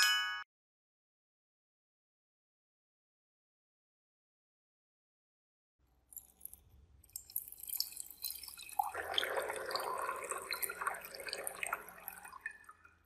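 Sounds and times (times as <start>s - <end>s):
water pouring into glass beaker: 6.1s - 13.0s.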